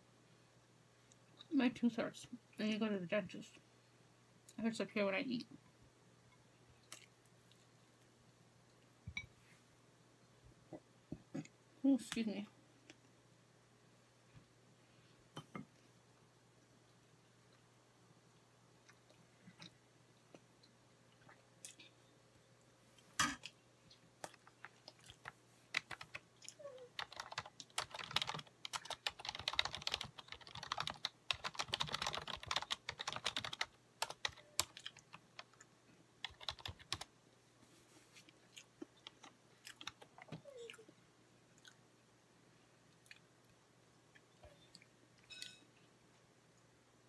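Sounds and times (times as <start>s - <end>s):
chewing: 18.8s - 21.9s, 23.4s - 25.4s, 42.9s - 45.3s.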